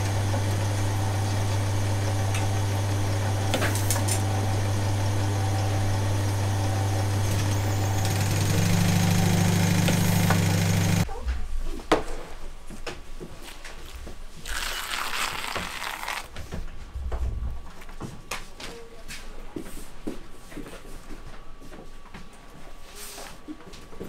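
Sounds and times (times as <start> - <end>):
machine motor humming: 0.0 - 11.0.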